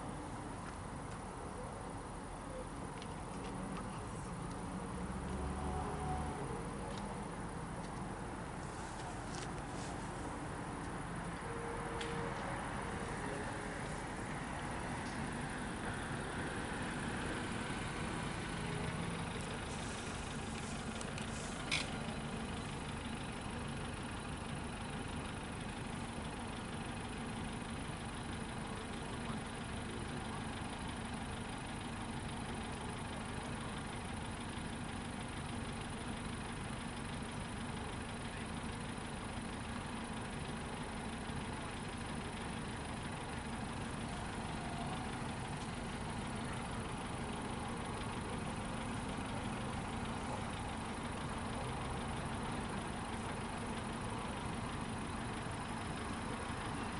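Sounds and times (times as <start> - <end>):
vehicle engines idling: 0.0 - 56.9.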